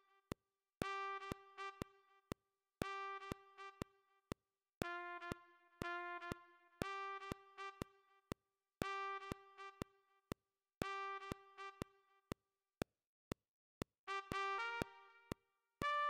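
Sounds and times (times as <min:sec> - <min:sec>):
synthesized trumpet: 0:00.8 - 0:01.8, 0:02.8 - 0:03.8, 0:04.8 - 0:07.8, 0:08.8 - 0:09.8, 0:10.8 - 0:11.8, 0:14.1 - 0:16.0.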